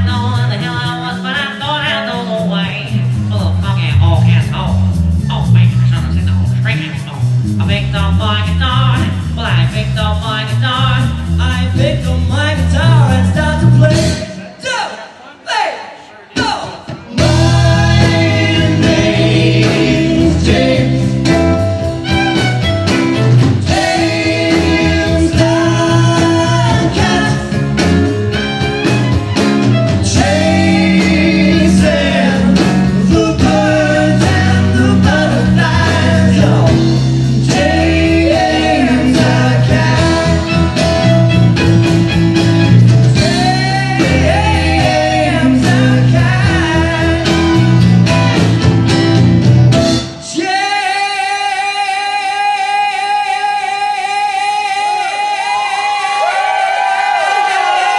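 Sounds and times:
electric bass: 0.0s - 14.5s, 17.1s - 50.4s
drums: 0.0s - 15.2s, 15.8s - 57.9s
two people singing: 16.4s - 21.6s, 23.5s - 28.0s, 30.0s - 41.0s, 43.1s - 47.7s, 50.2s - 57.9s
acoustic guitar: 16.9s - 55.3s.

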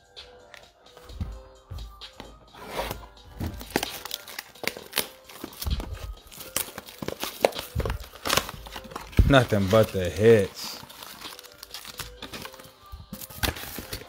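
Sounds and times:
packaging crinkling and tearing: 3.6s - 14.0s.

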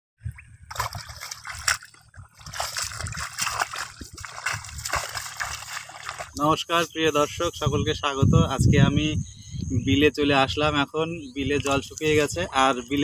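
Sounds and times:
muddy water splashing: 0.2s - 6.9s, 11.4s - 13.0s.

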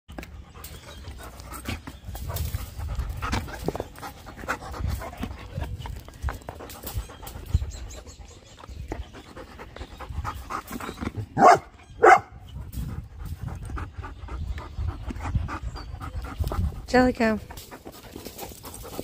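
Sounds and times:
dogs panting: 0.1s - 19.0s
dog barks: 11.4s - 12.3s.

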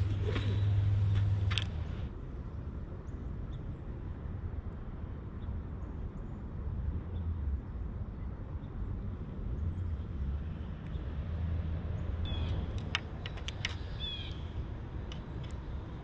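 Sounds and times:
steady low rumble: 0.0s - 5.2s.

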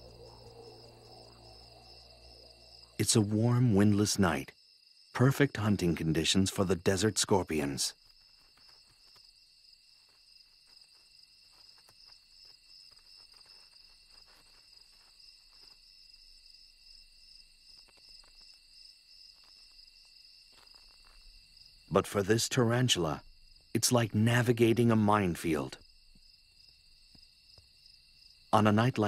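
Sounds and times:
night insects trilling: 0.0s - 29.0s
faint ticks and scratches: 7.2s - 22.0s, 25.8s - 28.4s.

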